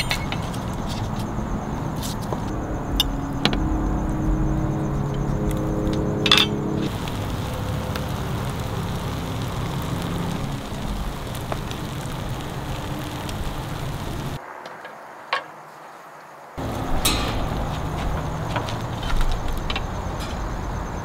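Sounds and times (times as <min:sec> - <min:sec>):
eel sizzling on grill: 0:04.8 - 0:14.4.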